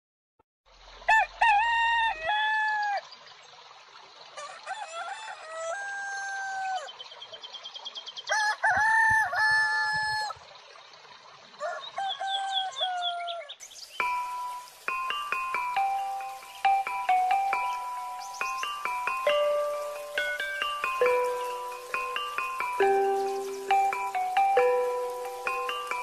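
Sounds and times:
rooster crowing: 1.1 - 3.0, 4.4 - 6.9, 8.3 - 10.4, 11.6 - 13.5
small birds chirping: 6.6 - 8.3, 11.8 - 26.0.

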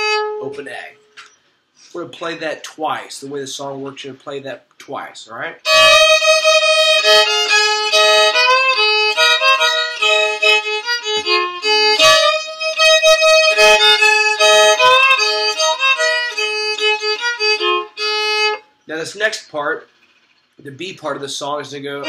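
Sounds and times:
solo fiddle with droning string: 0.0 - 0.5, 5.7 - 18.6.

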